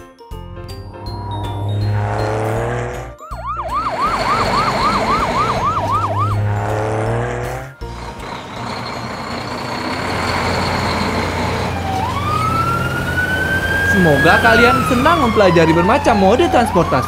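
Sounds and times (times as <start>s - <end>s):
background music: 0.0s - 17.0s
cartoon siren wailing: 3.2s - 6.5s, 11.7s - 17.0s.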